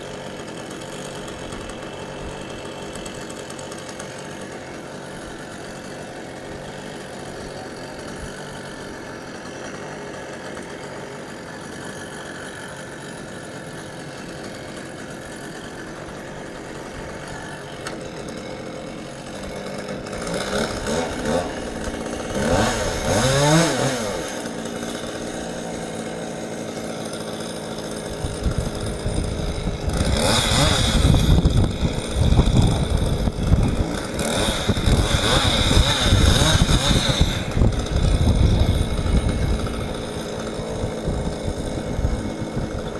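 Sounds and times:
chainsaw engine revving: 0.0s - 42.9s.

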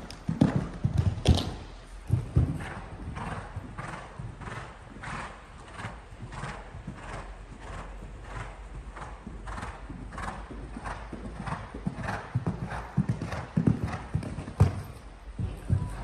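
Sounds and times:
heavy hoof thuds: 0.0s - 16.0s
horse hoofbeats on sand: 0.0s - 16.0s.

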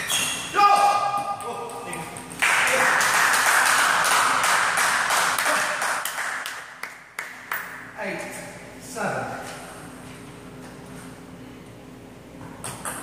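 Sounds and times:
spectators applauding: 2.4s - 7.4s.

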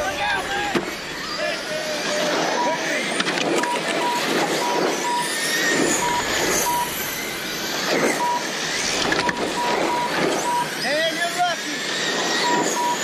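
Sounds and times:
rc cars passing on asphalt: 0.0s - 13.0s
short electronic beeps: 3.6s - 7.2s, 8.0s - 10.8s, 12.4s - 13.0s.

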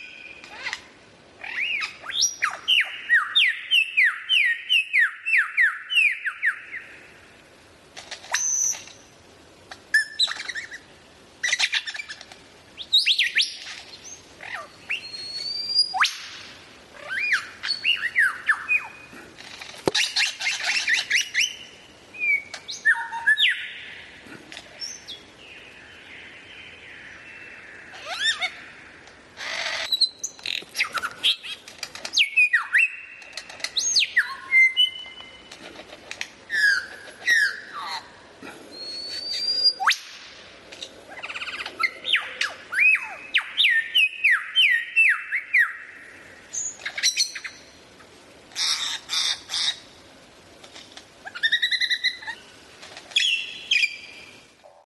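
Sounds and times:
songbird singing: 0.0s - 54.8s.

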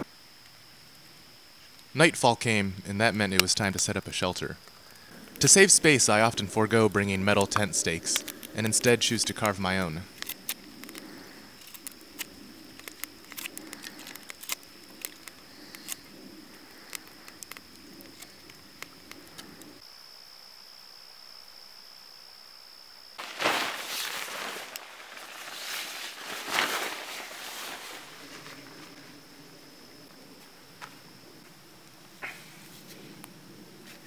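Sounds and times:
high insect trill: 0.0s - 34.0s
loud rustling: 23.2s - 29.0s.

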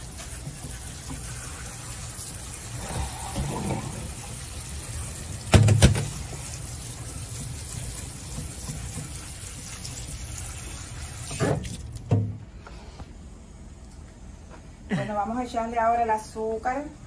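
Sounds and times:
tap water running into colander: 0.0s - 12.3s
loud knocks: 5.5s - 6.1s.

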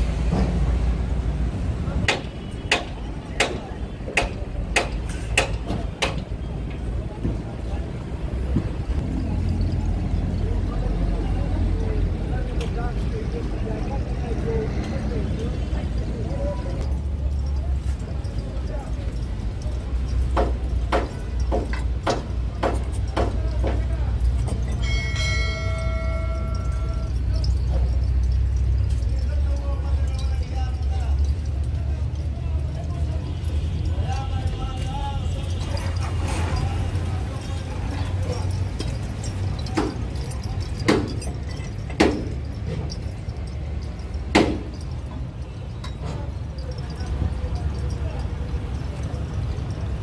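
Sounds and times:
bell-like chime: 24.2s - 31.6s.

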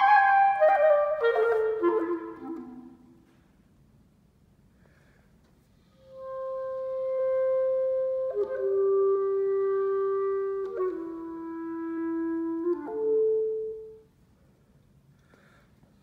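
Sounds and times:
solo clarinet playing long notes: 0.0s - 3.2s, 6.0s - 14.1s.

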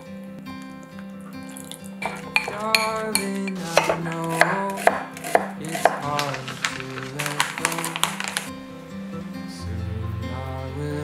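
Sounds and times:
light background music: 0.0s - 11.0s
glass mixing bowl sounds: 1.4s - 8.5s
knife slicing onion on board: 2.0s - 8.4s.

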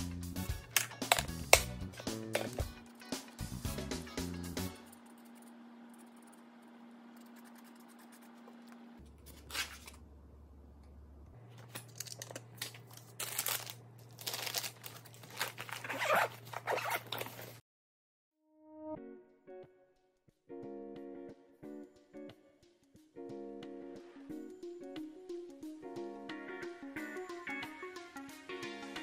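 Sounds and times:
faint hum: 4.7s - 15.9s.

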